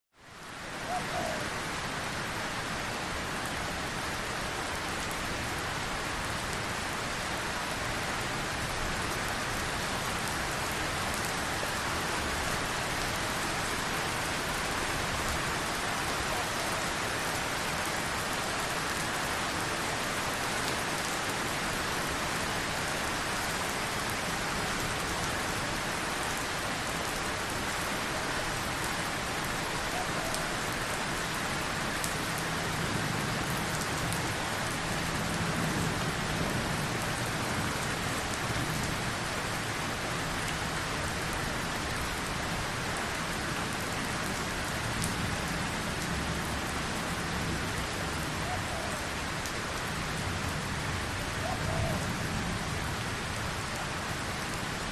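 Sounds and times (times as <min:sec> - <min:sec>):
steady rain: 0:00.1 - 0:54.9.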